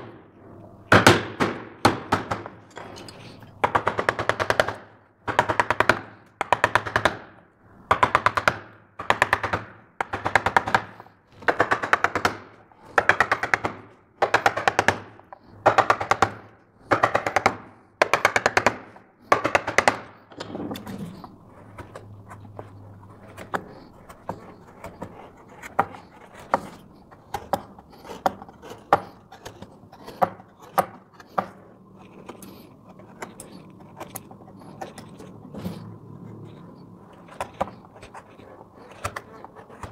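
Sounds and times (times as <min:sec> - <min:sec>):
gouge scraping wood: 0:18.2 - 0:39.9.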